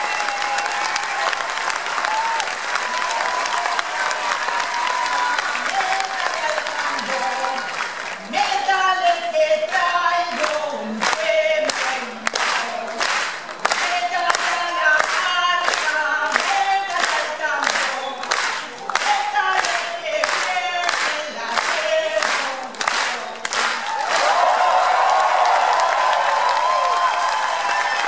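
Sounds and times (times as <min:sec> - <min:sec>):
rhythmic clapping: 0:00.0 - 0:28.0
crowd singing: 0:04.9 - 0:24.0.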